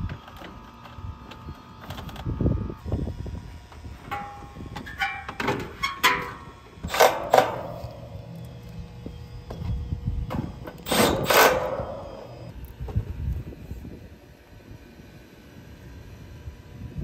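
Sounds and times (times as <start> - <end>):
metallic clanks and rattles: 4.1 - 8.1.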